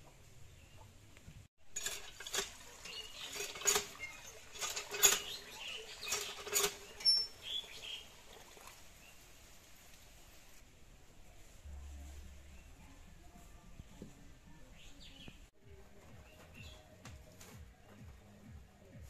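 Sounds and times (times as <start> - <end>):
metal pan scrubbed with water: 1.6 - 8.8.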